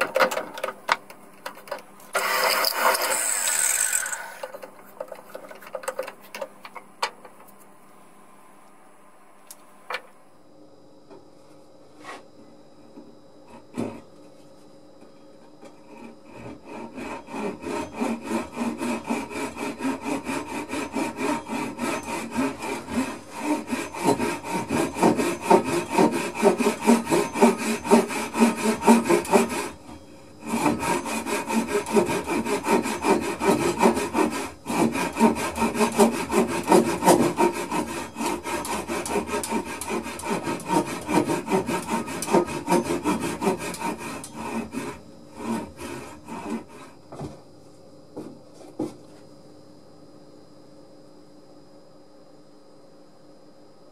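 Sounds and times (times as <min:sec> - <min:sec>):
hand saw cutting wood: 0:02.1 - 0:06.0, 0:15.9 - 0:29.8, 0:30.4 - 0:47.0.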